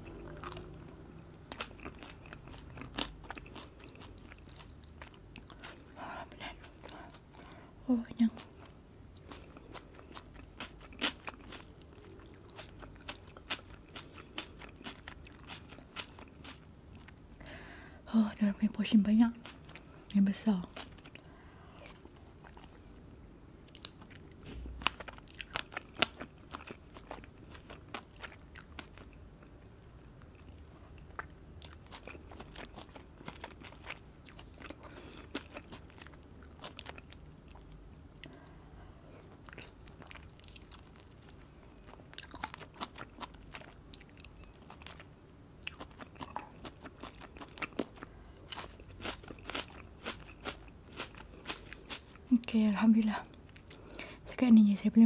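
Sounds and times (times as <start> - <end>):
chewing and biting meat: 0.1 - 7.5, 8.4 - 17.2, 23.7 - 29.5, 30.2 - 38.4, 39.4 - 52.3.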